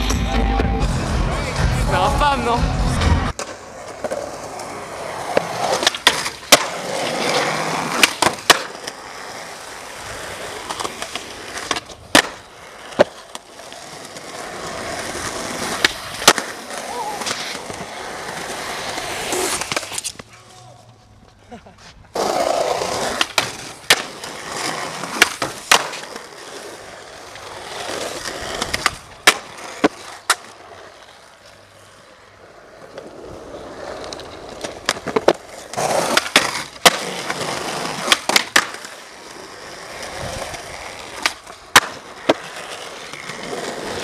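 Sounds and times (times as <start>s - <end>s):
skateboard trucks grinding wood: 0.0s - 21.2s, 21.8s - 44.0s
skateboard wheels rolling: 0.0s - 44.0s
skateboard clacks: 3.3s - 21.0s, 22.1s - 31.6s, 32.9s - 44.0s.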